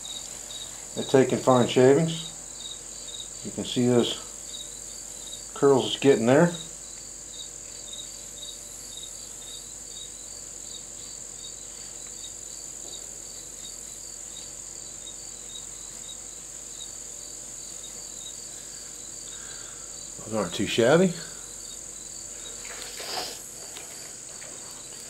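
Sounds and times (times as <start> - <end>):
insect chirping: 0.0 - 25.0
insect high-pitched drone: 0.0 - 25.0.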